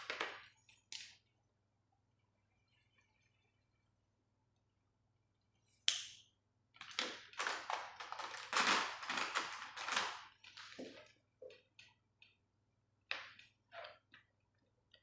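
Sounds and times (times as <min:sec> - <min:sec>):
markers and pencils clattering: 0:06.8 - 0:11.0.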